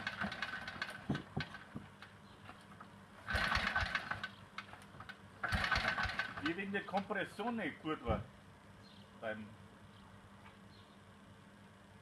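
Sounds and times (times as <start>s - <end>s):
motorcycle throttle bursts: 3.2s - 4.4s, 5.4s - 6.6s
motorcycle engine idling: 3.2s - 6.6s.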